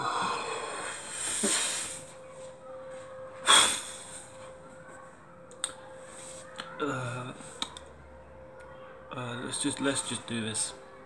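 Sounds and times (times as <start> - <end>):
man sniffing and breathing heavily: 0.0 - 2.1.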